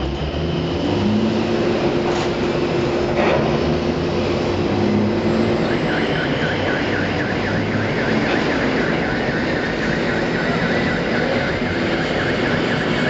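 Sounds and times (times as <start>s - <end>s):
crane machinery drone: 0.0s - 13.0s
warbling electronic warning alarm: 4.7s - 13.0s.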